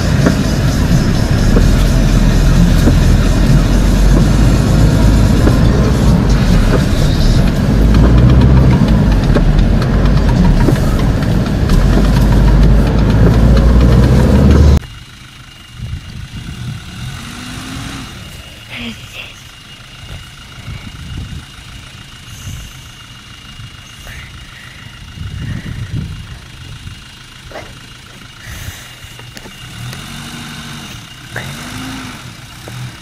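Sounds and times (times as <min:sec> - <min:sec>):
engine idling outdoors: 0:00.0 - 0:33.0
vehicle engine and cabin rumble: 0:00.0 - 0:33.0.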